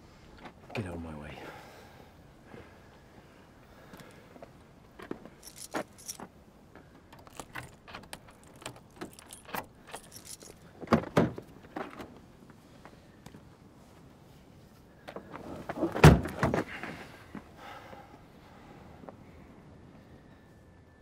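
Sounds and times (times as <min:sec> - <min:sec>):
objects clicking and rattling: 0:05.4 - 0:06.3, 0:07.1 - 0:10.6.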